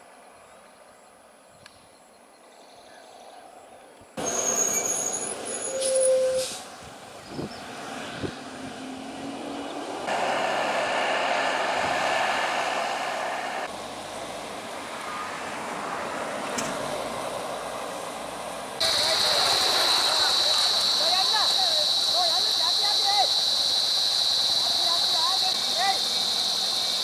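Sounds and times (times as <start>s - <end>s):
road vehicle noise: 2.9s - 27.0s
high whistling tones: 4.2s - 6.6s.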